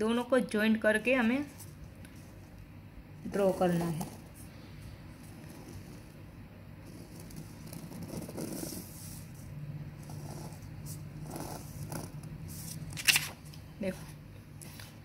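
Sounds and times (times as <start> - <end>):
low steady hum: 0.0 - 15.0
pencil tracing: 5.2 - 12.9.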